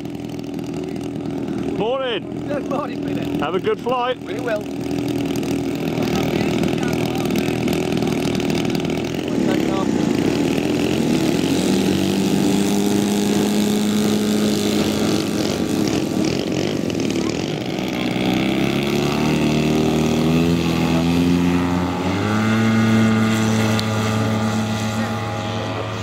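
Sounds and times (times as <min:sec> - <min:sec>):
deeper model aircraft engine: 0:00.0 - 0:26.0
model aircraft engine running: 0:00.0 - 0:26.0.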